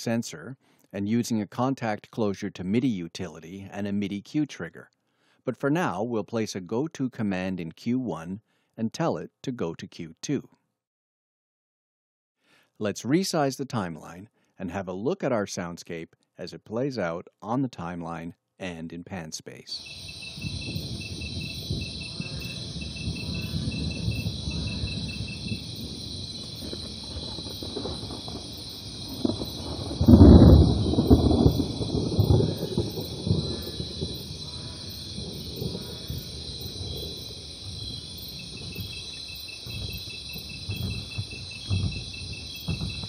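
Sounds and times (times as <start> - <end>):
crickets chirping: 19.8 - 43.0
high insect drone: 19.8 - 43.0
low rumbles: 19.9 - 43.0.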